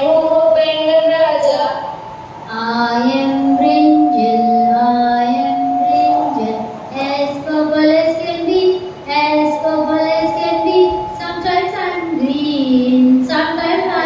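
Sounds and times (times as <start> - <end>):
children singing: 9.3 - 14.0.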